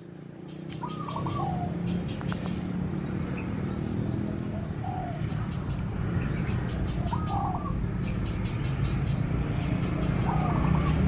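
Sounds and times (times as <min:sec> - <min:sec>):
dove cooing: 0:00.6 - 0:02.6, 0:04.1 - 0:05.8, 0:06.4 - 0:08.4, 0:09.1 - 0:11.0.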